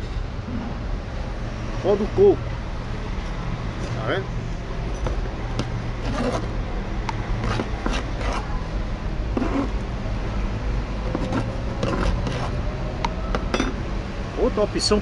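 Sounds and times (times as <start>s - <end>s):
metal spoon scraping coir: 6.0s - 6.5s, 7.4s - 8.5s, 9.4s - 9.8s, 11.1s - 12.6s.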